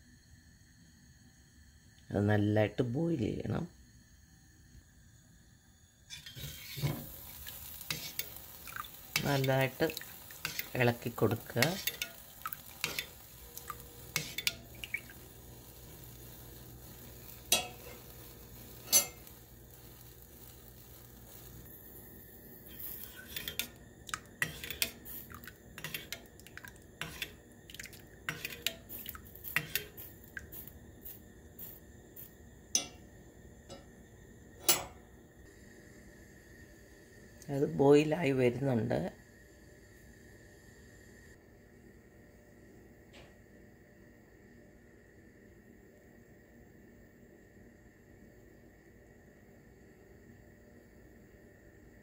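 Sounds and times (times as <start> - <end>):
spoon clinking against pan: 17.5 - 18.0, 18.8 - 19.3, 32.8 - 33.0.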